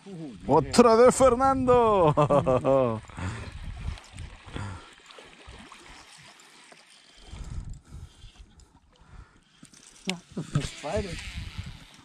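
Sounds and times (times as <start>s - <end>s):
wind on microphone: 0.4s - 4.8s, 7.2s - 8.6s, 10.4s - 12.0s
fish splashing in water: 3.7s - 7.4s.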